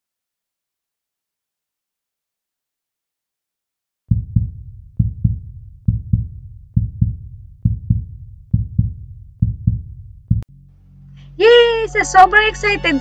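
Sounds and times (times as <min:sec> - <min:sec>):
low double thumps: 0:04.1 - 0:11.0.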